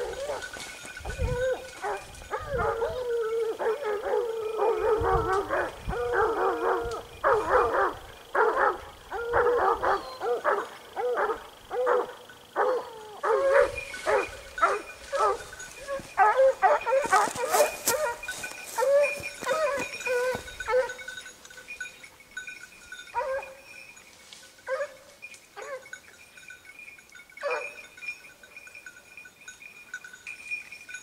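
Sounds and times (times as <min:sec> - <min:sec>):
hounds baying and barking: 0:00.0 - 0:26.4, 0:27.3 - 0:29.2.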